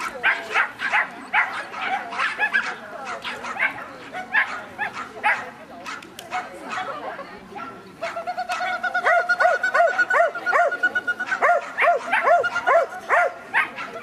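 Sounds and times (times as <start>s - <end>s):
small dog yapping: 8.0s - 14.0s.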